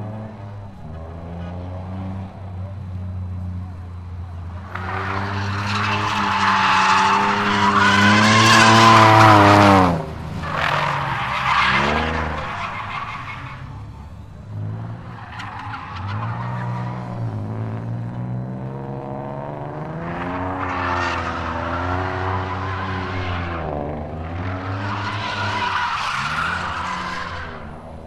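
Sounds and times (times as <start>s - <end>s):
car engine revving: 0.0s - 28.0s
tyre squeal: 4.6s - 9.7s, 24.4s - 27.7s.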